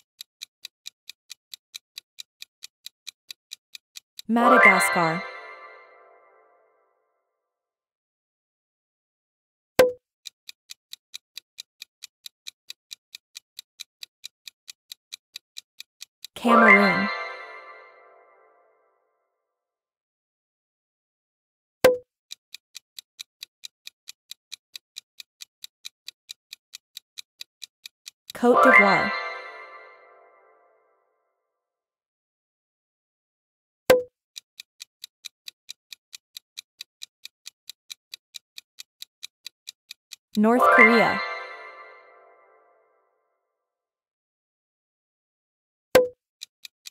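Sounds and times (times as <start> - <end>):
countdown timer ticking: 0.0 - 6.4, 10.7 - 18.6, 23.0 - 30.6, 33.9 - 42.8.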